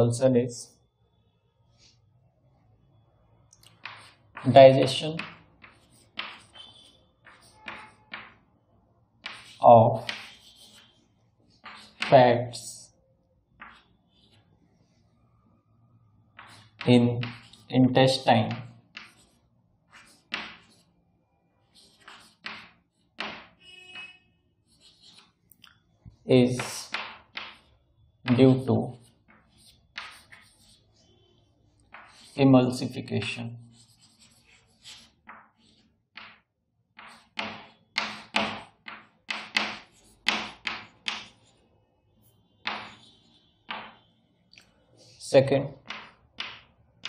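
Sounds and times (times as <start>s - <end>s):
chalk scratching on blackboard: 3.6s - 8.4s, 9.2s - 12.7s, 13.6s - 15.0s, 16.3s - 21.0s, 21.6s - 25.4s, 26.3s - 36.4s, 37.0s - 41.6s, 42.2s - 44.1s.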